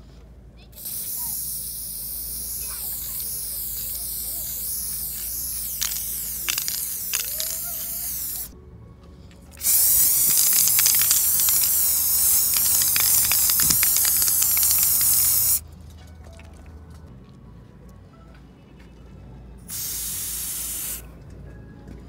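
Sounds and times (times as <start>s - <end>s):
aerosol spray can hissing: 0.8s - 8.6s, 9.6s - 15.6s, 19.7s - 21.0s.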